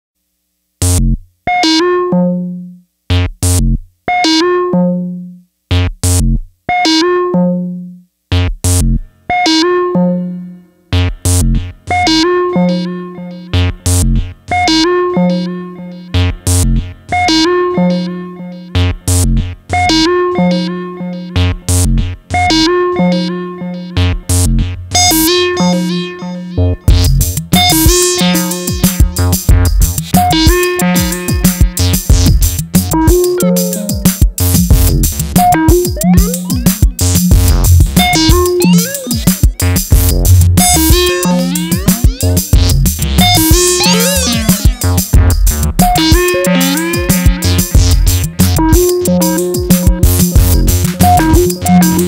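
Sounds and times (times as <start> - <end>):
analog synthesizer sequence: 8.7 - 52.0
tape echo repeats: 24.5 - 52.0.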